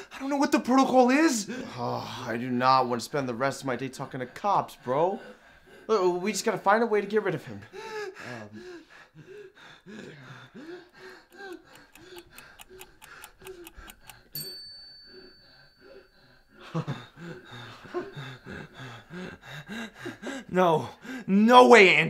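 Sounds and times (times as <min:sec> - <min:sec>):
clock-like ticking: 0:10.3 - 0:15.4
bell-like ding: 0:14.4 - 0:16.1.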